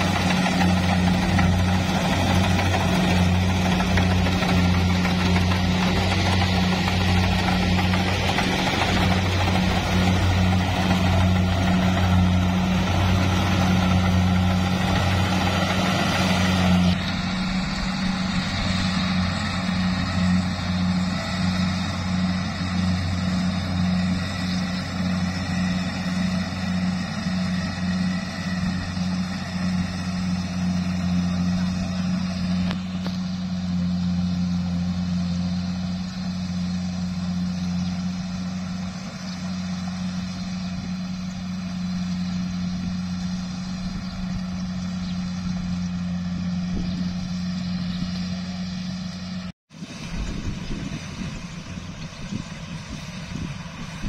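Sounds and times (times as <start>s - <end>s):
combine harvester running: 0.0s - 54.0s.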